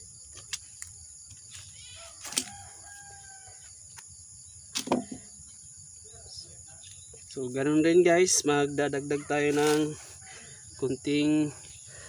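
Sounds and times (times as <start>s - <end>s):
insects trilling: 0.0s - 12.0s
rooster crowing: 1.8s - 3.8s.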